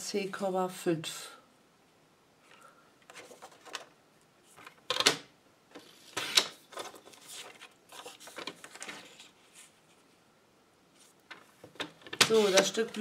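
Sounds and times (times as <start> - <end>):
paper rustling: 3.1 - 4.8, 5.8 - 10.2, 10.9 - 13.0.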